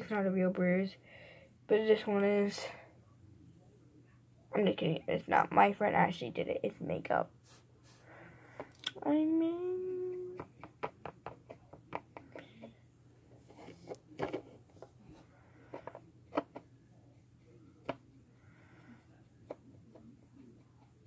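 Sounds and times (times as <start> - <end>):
fingers tapping a paint pen: 10.2 - 12.5.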